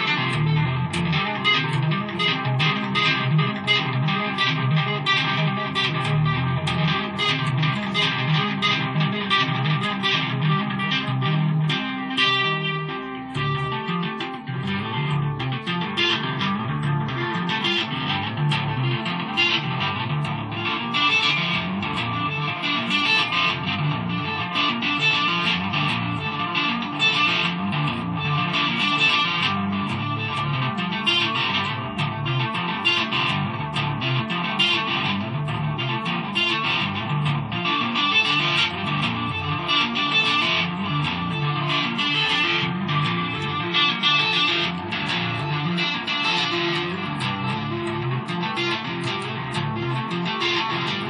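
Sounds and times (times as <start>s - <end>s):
electric guitar tapping: 0.0s - 51.0s.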